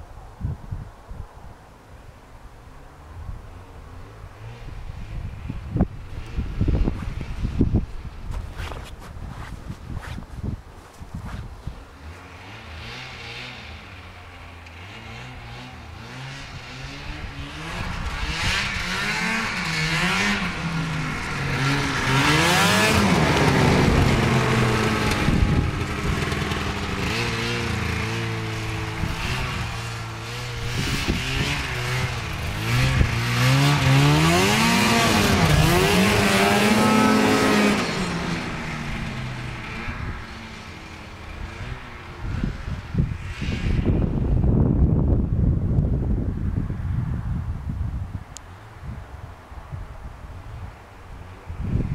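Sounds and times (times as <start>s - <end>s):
snowmobile engine revving by: 4.4s - 7.8s, 11.2s - 44.7s.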